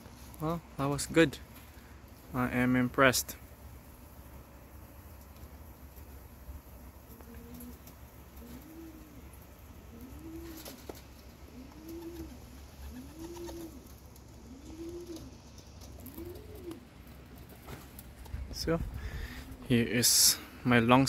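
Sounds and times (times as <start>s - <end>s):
pigeon cooing: 7.0s - 18.0s, 19.0s - 19.7s.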